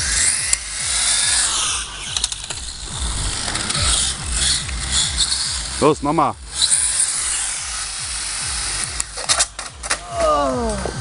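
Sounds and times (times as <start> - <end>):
electric motor whining: 0.0 - 11.0
low rumble: 1.0 - 9.1.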